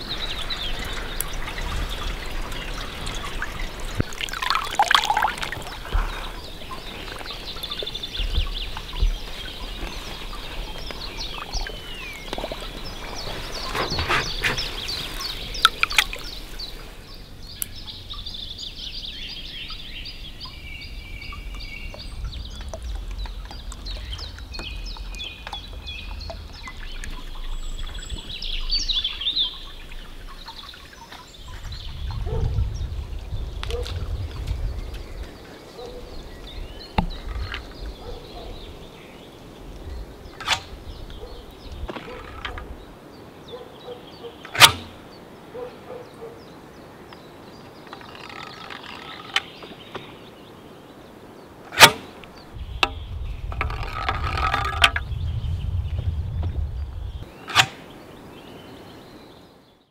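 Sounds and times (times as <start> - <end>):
sharp splashes: 0.0 - 13.6
water dripping and trickling: 0.0 - 16.9, 20.3 - 43.0
birds calling: 0.0 - 59.9.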